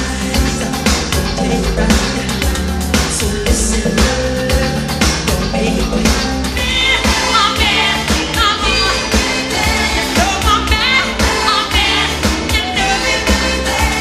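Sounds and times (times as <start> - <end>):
man singing: 0.0 - 6.6
pop band with drum beat: 0.0 - 14.0.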